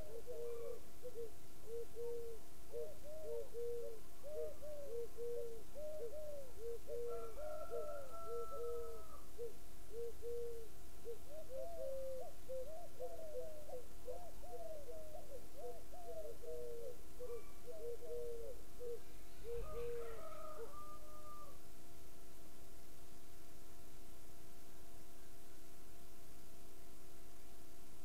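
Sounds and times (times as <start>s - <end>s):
chorus of hooting calls: 19.4s - 21.5s.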